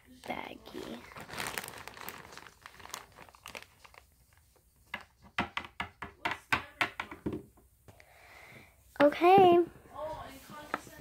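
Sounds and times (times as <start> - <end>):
plastic bag crinkling: 0.1 - 4.6.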